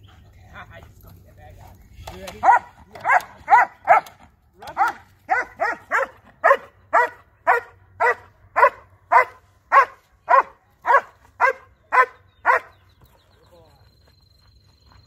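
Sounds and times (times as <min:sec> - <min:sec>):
dog barking loudly: 0:02.4 - 0:12.7.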